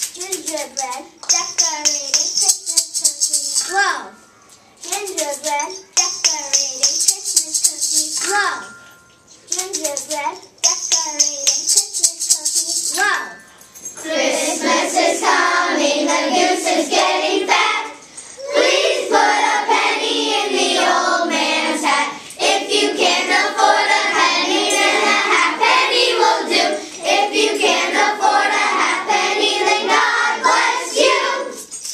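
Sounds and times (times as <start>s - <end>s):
children singing together: 14.0s - 31.7s.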